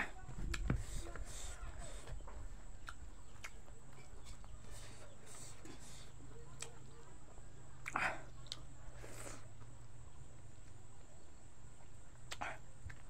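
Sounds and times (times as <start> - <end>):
low steady hum: 0.0 - 13.0
mouth clicks and smacks eating: 2.7 - 4.6, 5.2 - 6.9, 7.8 - 9.7, 12.1 - 13.0.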